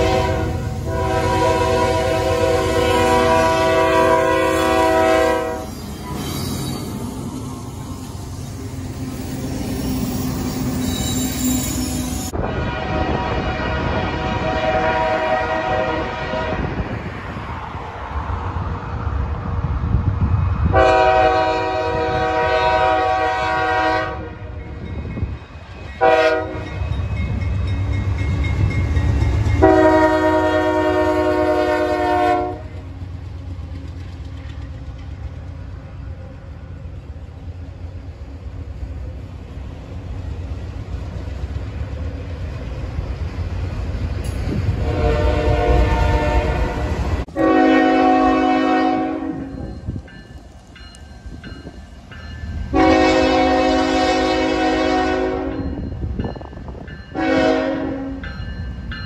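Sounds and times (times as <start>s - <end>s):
train air horn blasts: 0.0s - 5.8s, 12.3s - 17.0s, 20.7s - 24.6s, 26.0s - 26.8s, 29.6s - 32.8s, 44.6s - 49.7s, 52.7s - 55.7s, 57.1s - 58.3s
train rumbling and clattering past: 0.0s - 59.0s.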